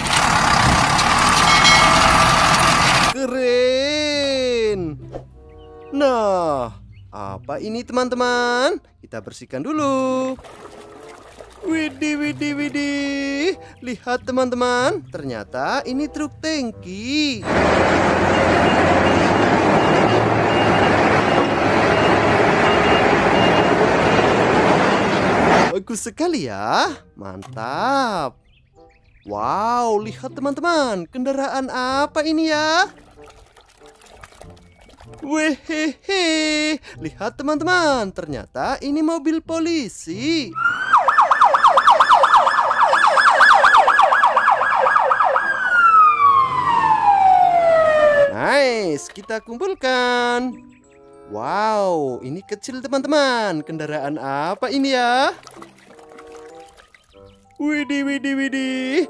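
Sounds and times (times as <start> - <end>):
truck diesel engine running: 0.0 - 3.2, 17.4 - 25.7
police siren: 1.0 - 3.2, 17.4 - 25.7, 40.5 - 48.4
reversing alarm beeping: 1.4 - 3.2, 17.4 - 25.7.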